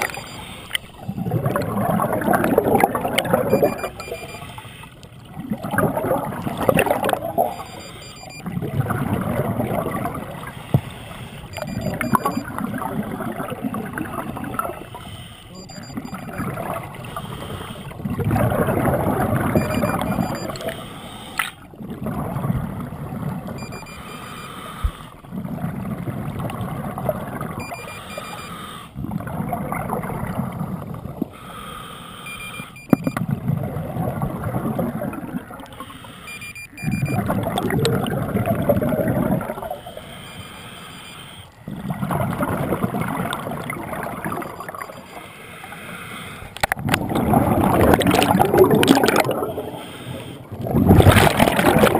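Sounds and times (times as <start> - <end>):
regulator exhale bubbling: 0.0 - 51.9
inhalation through regulator: 48.9 - 50.5.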